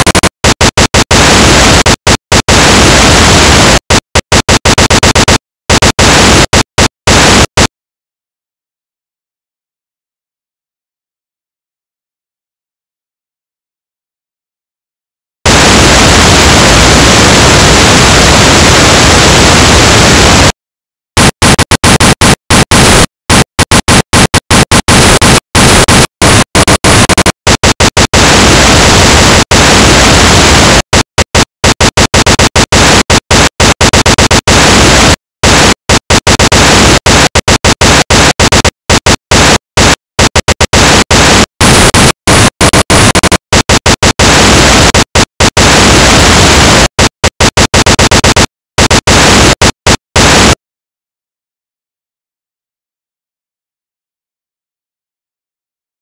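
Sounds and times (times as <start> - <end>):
electronic white noise bursts: 0.0 - 7.7, 15.5 - 20.6, 21.2 - 50.6.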